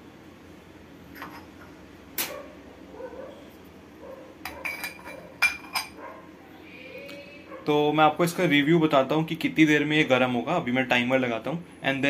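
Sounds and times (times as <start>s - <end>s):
ceramic lid clinking on mug: 4.5s - 6.0s.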